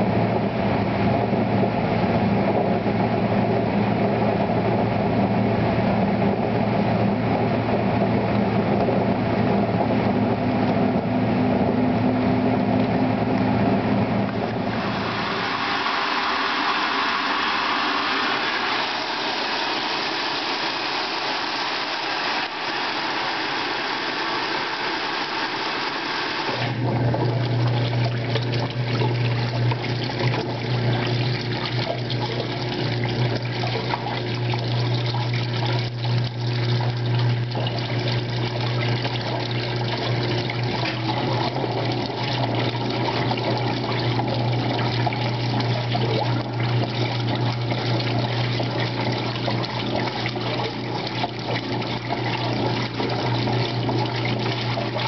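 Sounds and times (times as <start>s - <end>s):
washing machine motor humming: 0.0s - 55.0s
water pouring into washing machine: 14.1s - 55.0s.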